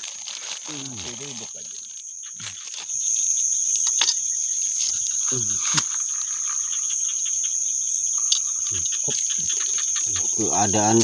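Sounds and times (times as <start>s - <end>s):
night insects chorus: 0.0s - 11.0s.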